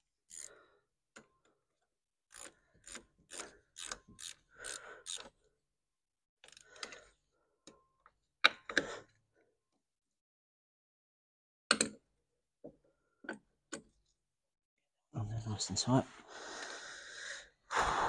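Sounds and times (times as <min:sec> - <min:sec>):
hand ratchet clicking: 0:00.3 - 0:00.5, 0:02.3 - 0:05.4, 0:06.4 - 0:07.0.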